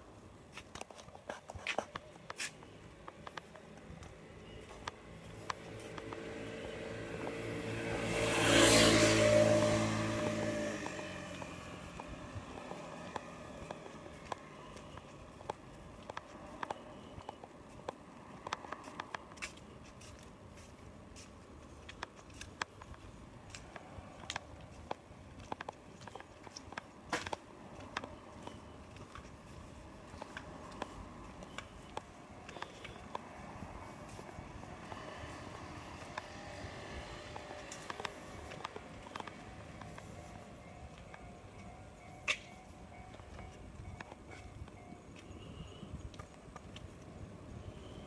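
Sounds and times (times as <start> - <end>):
car passing: 5.0 - 14.6, 32.1 - 43.5.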